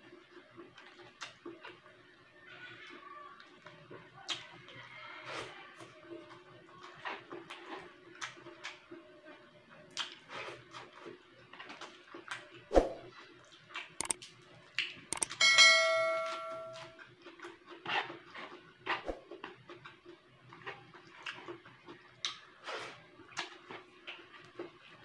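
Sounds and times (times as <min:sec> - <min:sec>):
lip smacks and chewing: 0:00.1 - 0:01.9, 0:03.4 - 0:04.7, 0:06.3 - 0:12.6, 0:17.2 - 0:25.0
sharp clicks: 0:15.1 - 0:15.4
notification bell chime: 0:15.2 - 0:17.0.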